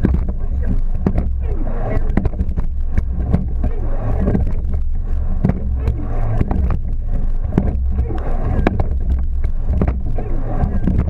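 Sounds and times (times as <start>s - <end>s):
oars knocking in oarlocks: 0.0s - 1.4s, 5.4s - 10.1s
wind and water rumble: 0.0s - 11.0s.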